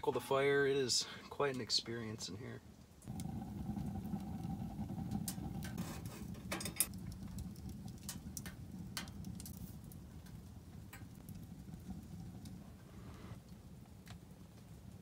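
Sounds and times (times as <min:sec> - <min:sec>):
wood fire crackling: 0:00.2 - 0:15.0
low steady rush: 0:03.1 - 0:13.9.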